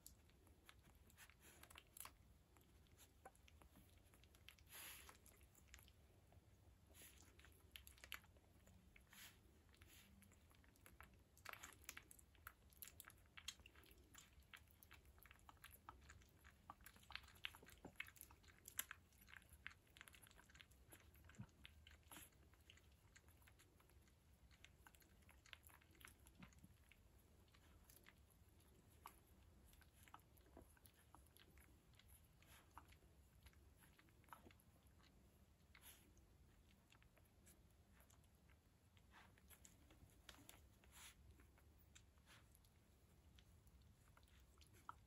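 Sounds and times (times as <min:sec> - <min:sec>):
puppies mouth clicks and smacking: 0:00.0 - 0:45.0.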